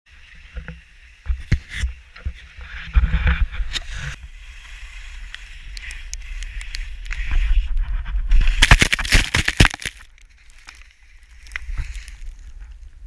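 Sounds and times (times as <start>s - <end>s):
skis hissing on wet snow: 3.9s - 8.8s.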